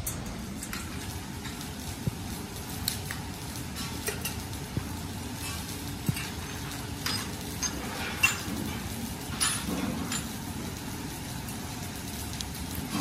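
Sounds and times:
low machine hum: 0.0 - 13.0
metal clinks and knocks: 5.5 - 10.4.

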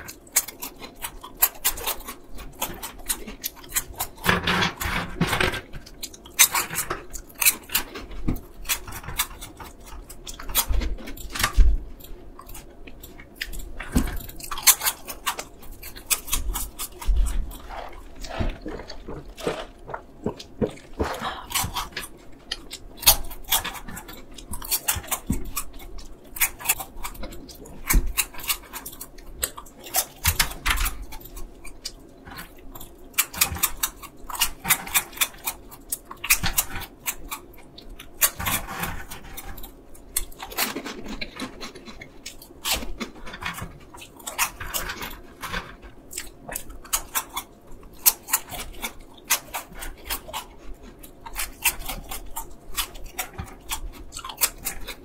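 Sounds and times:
crunching and chewing snacks: 0.0 - 55.0.

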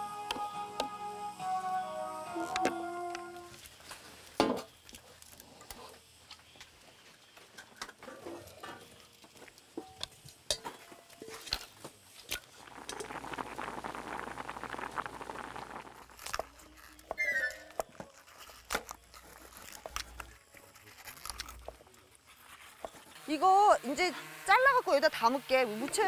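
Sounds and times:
pot of potatoes boiling: 2.4 - 26.0
metal bowls and lids clinking: 9.7 - 11.7.

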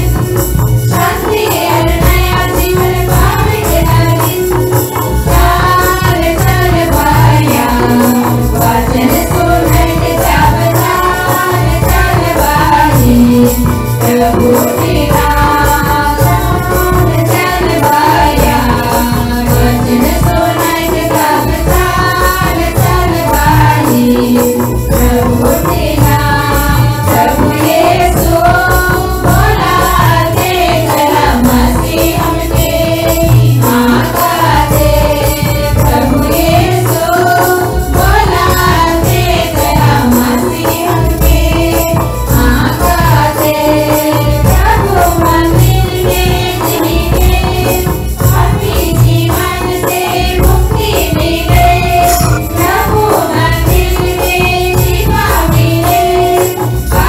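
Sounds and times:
group singing: 0.0 - 57.0
jingling percussion: 0.0 - 57.0
steady drum beat: 0.0 - 57.0.

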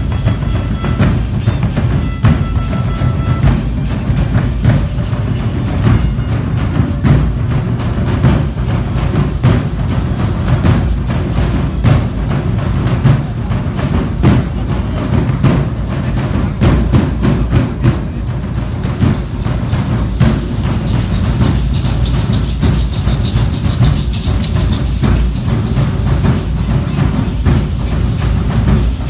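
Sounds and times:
violin: 0.0 - 7.1
drum beating: 0.0 - 29.0
hand rattles shaking: 20.4 - 29.0.

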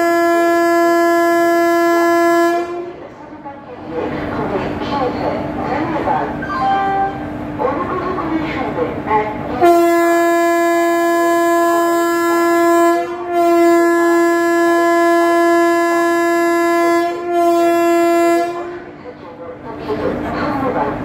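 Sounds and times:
locomotive horn blasts: 0.0 - 3.0, 9.6 - 18.9.

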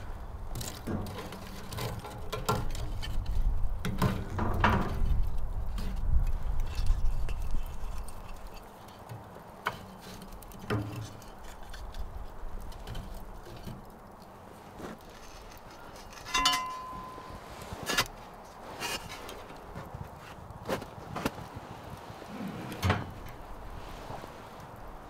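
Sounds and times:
ringing metallic clink: 16.3 - 17.4.

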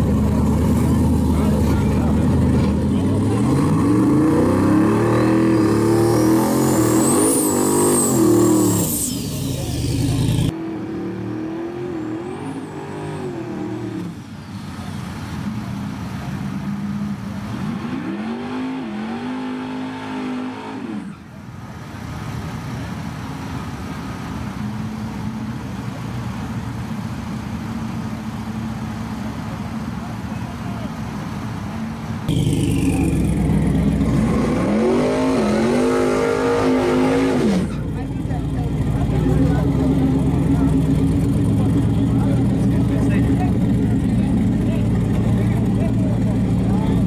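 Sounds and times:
truck engine idling: 0.0 - 4.2, 24.3 - 34.4, 37.7 - 47.0
truck engine revving: 0.0 - 21.3, 32.2 - 47.0.

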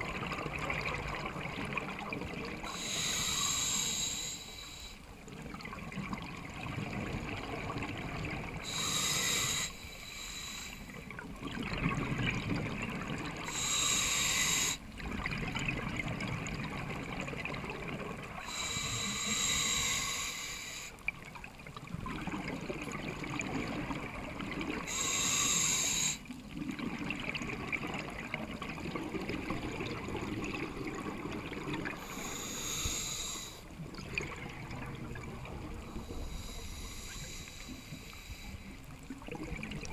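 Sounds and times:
bubbling and gurgling: 0.0 - 3.7, 5.0 - 9.6, 10.8 - 20.0, 21.0 - 39.9
regulator breathing hiss underwater: 2.6 - 5.1, 8.6 - 11.1, 13.4 - 14.9, 18.3 - 21.0, 24.8 - 26.3, 31.8 - 33.7, 35.8 - 38.8.

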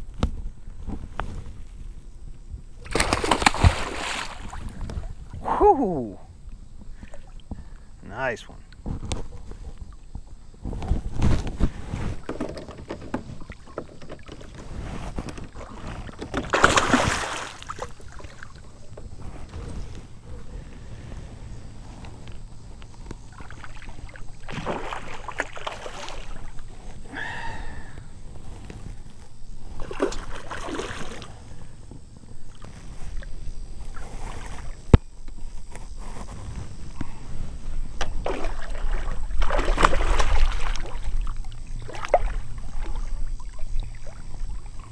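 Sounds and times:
fish splashing at surface: 2.9 - 4.7, 16.0 - 18.5, 23.4 - 26.5, 38.2 - 41.1
handling noise on boat: 8.7 - 27.1
knocks and rattles against kayak: 8.8 - 20.5, 28.2 - 44.9.

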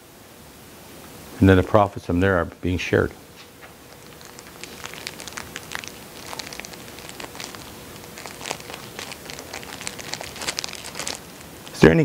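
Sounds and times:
faint steady hum: 0.0 - 12.0
crinkly material being handled: 3.4 - 12.0.

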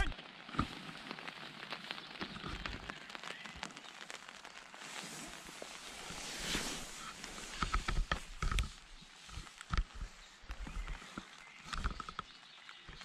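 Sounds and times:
rain pattering on tent: 0.0 - 13.0.

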